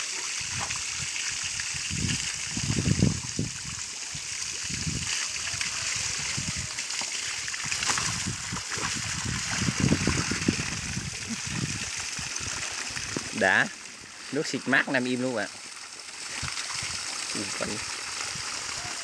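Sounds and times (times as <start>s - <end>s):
hose water spraying and splashing: 0.0s - 19.0s.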